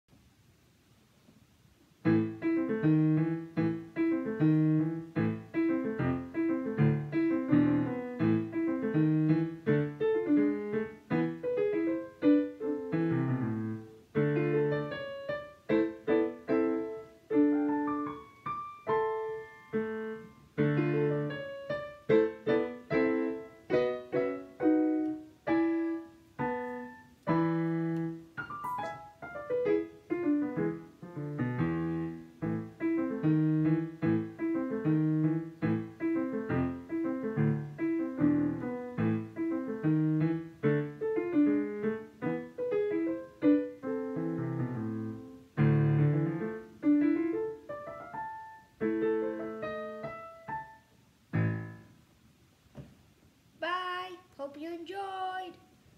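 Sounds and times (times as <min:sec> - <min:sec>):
piano piece: 0:02.0 - 0:52.3.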